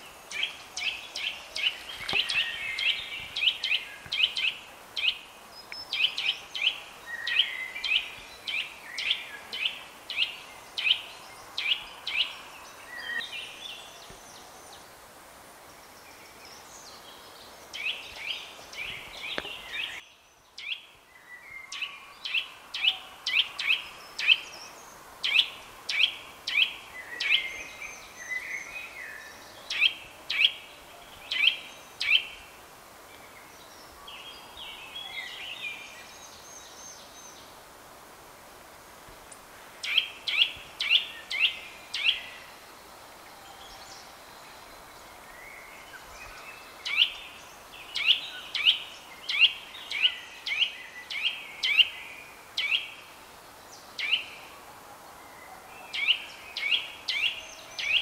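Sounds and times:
bird singing whistled notes: 39.8s - 42.6s, 43.2s - 53.0s.

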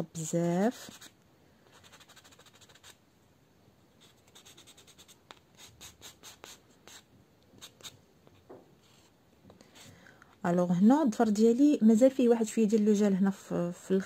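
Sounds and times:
nail buffer scratching fingernail: 0.8s - 3.0s, 4.0s - 7.0s.

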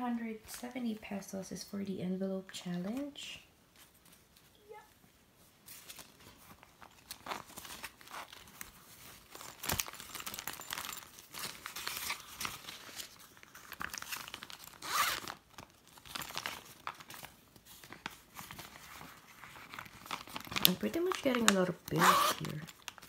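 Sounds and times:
paper and plastic crinkling: 5.4s - 23.0s.

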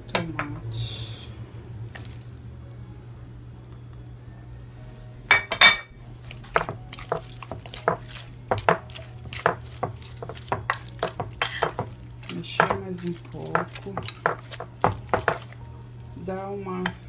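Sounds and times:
utensil tapping and scraping: 6.2s - 15.7s
utensil clinking on glass dish: 6.5s - 15.6s.

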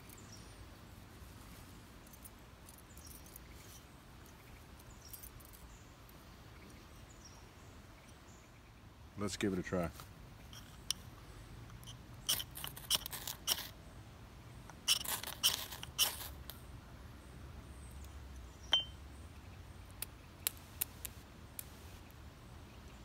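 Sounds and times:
glass scraping ferro rod: 11.7s - 13.8s, 14.8s - 16.5s.

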